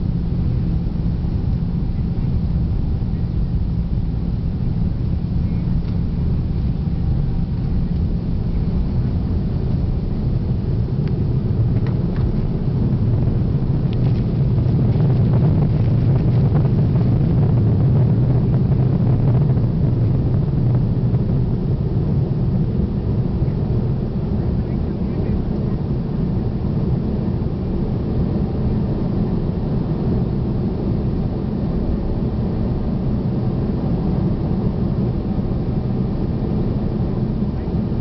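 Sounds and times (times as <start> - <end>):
jet engines roaring: 0.0 - 38.0.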